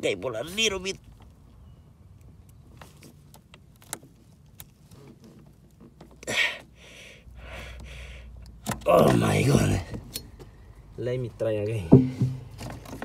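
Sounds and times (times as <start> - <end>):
rustle: 0.0 - 6.6.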